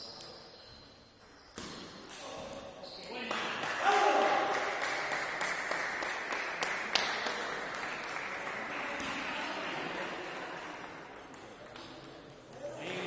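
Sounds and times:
scattered applause: 3.3s - 11.1s.

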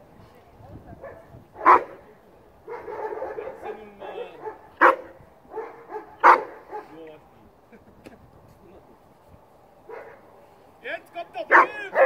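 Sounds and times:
dog barking: 1.0s - 2.0s, 2.7s - 7.0s, 9.9s - 10.2s, 11.5s - 12.0s.

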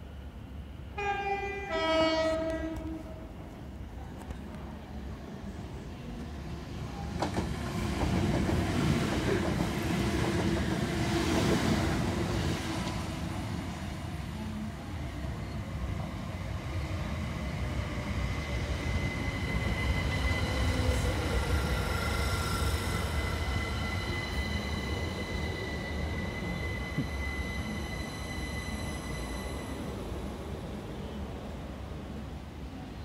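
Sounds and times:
train wheels rumbling on rail: 6.0s - 29.7s
high-pitched train whine: 9.3s - 31.4s.

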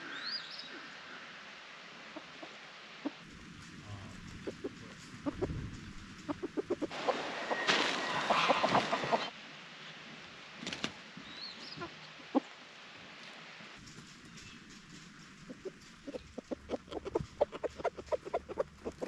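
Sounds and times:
chickens clucking: 2.2s - 9.3s, 11.7s - 12.5s, 13.8s - 19.0s
rustling noise: 3.2s - 9.3s, 13.2s - 19.0s.

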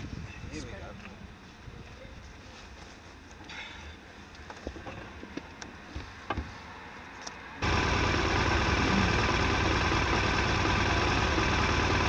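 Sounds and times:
motorcycle engine idling: 7.6s - 12.0s.

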